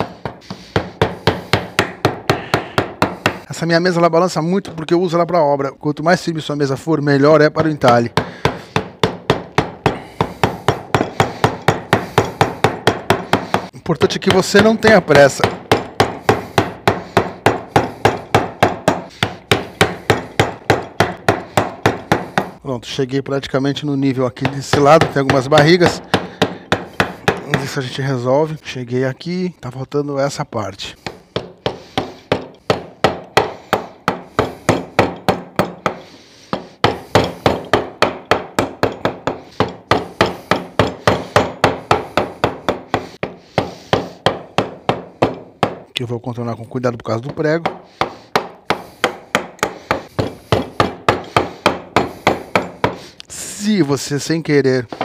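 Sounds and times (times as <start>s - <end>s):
mallet striking chisel into wood: 0.0s - 3.5s, 7.4s - 22.6s, 24.4s - 27.8s, 31.0s - 46.0s, 47.2s - 53.0s.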